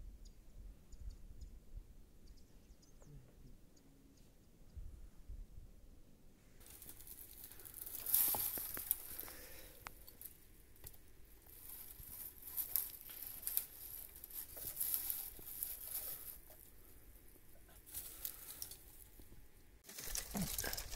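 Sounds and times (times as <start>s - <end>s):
crinkly rustling: 6.6s - 20.9s.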